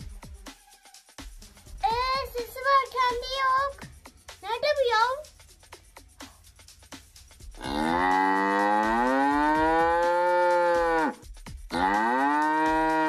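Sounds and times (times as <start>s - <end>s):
cow mooing: 7.6s - 13.0s.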